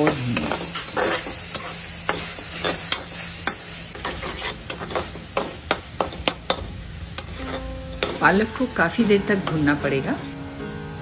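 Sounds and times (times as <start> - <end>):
greens sizzling: 0.0 - 11.0
spatula scraping metal pan: 0.8 - 5.5, 7.2 - 8.4.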